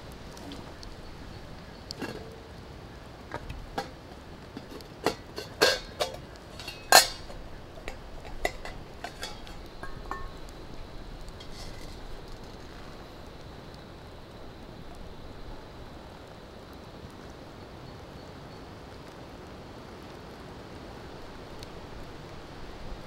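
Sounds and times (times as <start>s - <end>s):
metal pot clinking: 4.6s - 10.4s, 11.4s - 12.0s.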